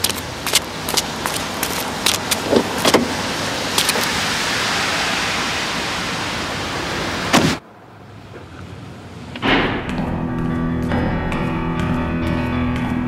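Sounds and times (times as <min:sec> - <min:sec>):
footsteps and taps: 0:00.0 - 0:03.1, 0:09.8 - 0:13.0
street traffic noise: 0:00.0 - 0:13.0
car door shutting: 0:02.5 - 0:03.2, 0:07.3 - 0:07.6.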